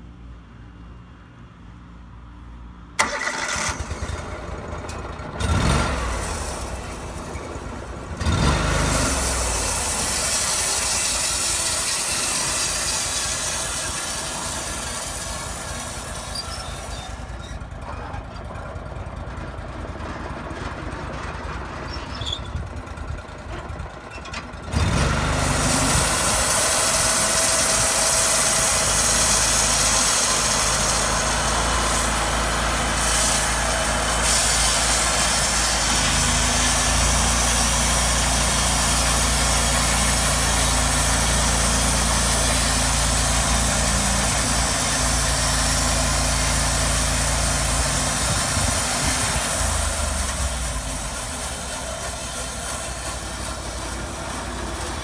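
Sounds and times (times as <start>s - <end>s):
sawmill engine running: 3.0s - 55.0s
band blade sawing log: 8.2s - 17.4s, 24.9s - 55.0s.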